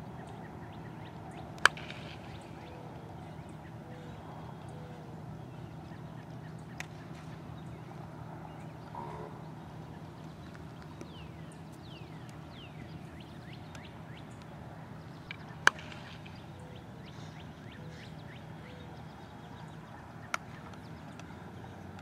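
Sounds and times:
birds chirping: 0:00.0 - 0:22.0
steady low hum: 0:00.0 - 0:22.0
baseball bat cracking ball: 0:01.5 - 0:02.7, 0:15.3 - 0:16.6.

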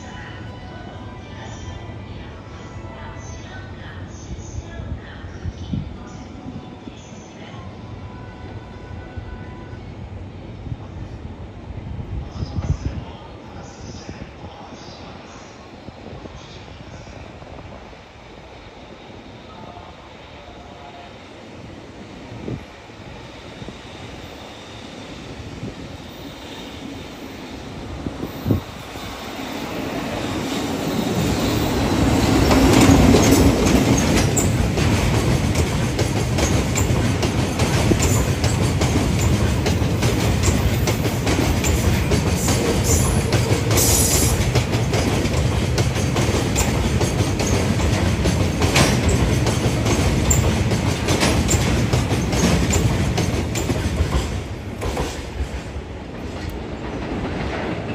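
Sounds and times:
electric locomotive passing: 0:14.8 - 0:57.9
train wagons rumbling: 0:27.1 - 0:57.9.

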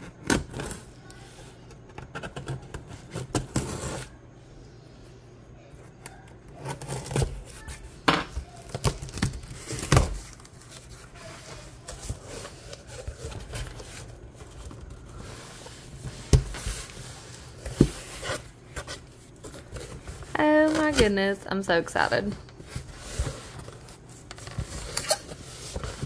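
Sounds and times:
tape tearing: 0:02.0 - 0:04.1, 0:08.6 - 0:15.0, 0:22.9 - 0:26.0
cardboard rustling: 0:06.5 - 0:21.3, 0:22.0 - 0:26.0.

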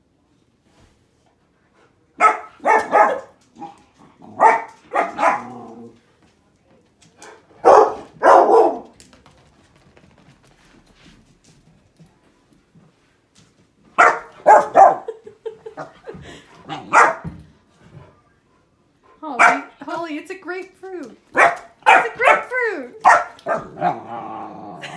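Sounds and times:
puppy barking: 0:02.2 - 0:03.7, 0:04.4 - 0:05.6, 0:07.6 - 0:08.9, 0:14.0 - 0:15.1, 0:16.7 - 0:17.3, 0:19.4 - 0:19.8, 0:21.3 - 0:24.0.

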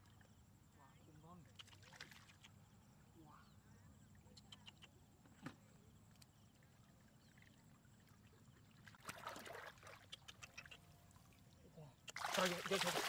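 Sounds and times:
hands splashing in muddy water: 0:09.0 - 0:10.4, 0:12.1 - 0:13.0.

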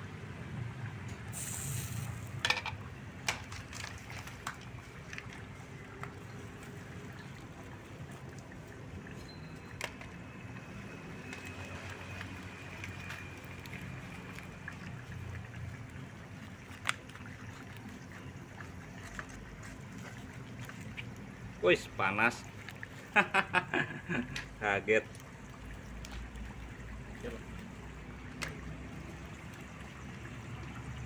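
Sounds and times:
liquid bubbling in a pan: 0:00.1 - 0:31.0
fire crackling: 0:01.3 - 0:02.4.

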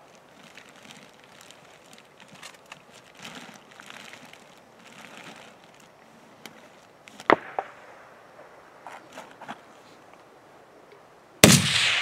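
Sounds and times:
faint rustling and handling: 0:00.0 - 0:07.4, 0:08.8 - 0:10.4
sharp loud crack: 0:11.4 - 0:12.0.

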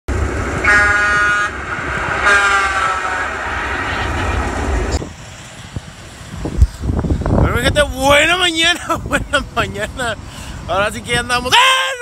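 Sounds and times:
heavy rumbling: 0:00.1 - 0:11.2
vehicle air horn blasts: 0:00.6 - 0:01.6, 0:02.2 - 0:03.3.

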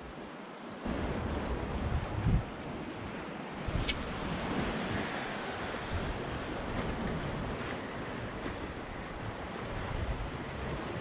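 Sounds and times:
surf washing against rocks: 0:00.0 - 0:11.0
wind buffeting microphone: 0:00.9 - 0:11.0.

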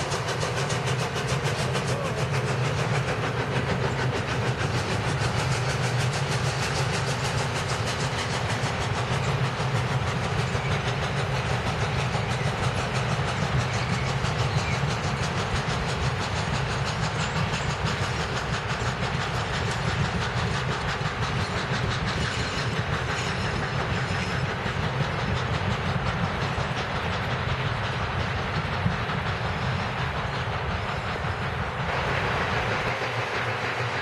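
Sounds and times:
train wheels rumbling and clicking: 0:00.0 - 0:34.0.

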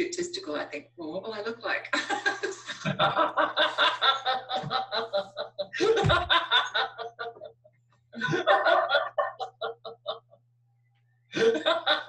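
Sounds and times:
people laughing hard: 0:02.0 - 0:07.6, 0:08.2 - 0:10.4, 0:11.4 - 0:12.0.

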